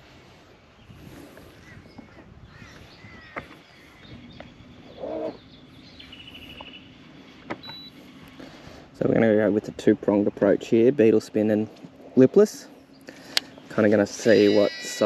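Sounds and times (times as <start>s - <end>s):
birds chirping: 0.0s - 15.0s
harsh bird call: 14.0s - 15.0s.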